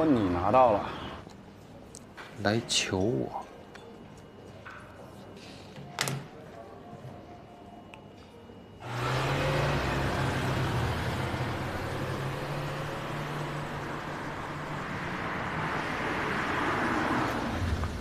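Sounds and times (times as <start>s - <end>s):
cars driving along street: 8.8s - 18.0s.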